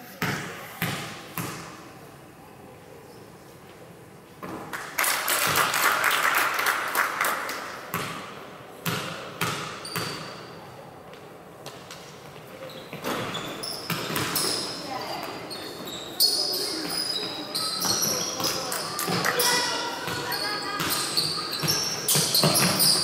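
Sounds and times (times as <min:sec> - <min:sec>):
crowd noise: 0:00.0 - 0:09.4, 0:10.4 - 0:23.0
basketball bouncing on court: 0:00.2 - 0:01.7, 0:07.9 - 0:10.4, 0:12.9 - 0:15.4, 0:16.8 - 0:23.0.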